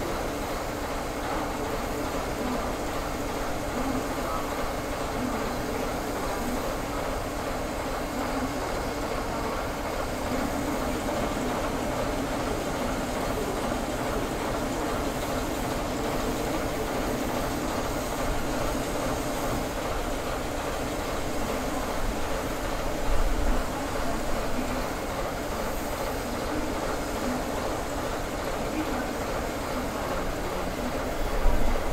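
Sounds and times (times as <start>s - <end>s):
diesel locomotive engine running: 0.0s - 31.9s.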